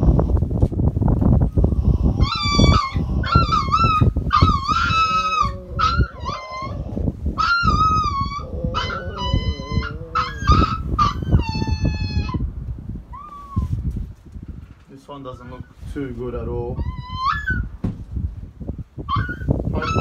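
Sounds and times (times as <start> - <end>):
puppy whining and yelping: 2.0 - 12.4, 13.1 - 13.8, 16.8 - 17.7, 19.1 - 20.0
rustling and knocks on blanket: 17.8 - 18.2.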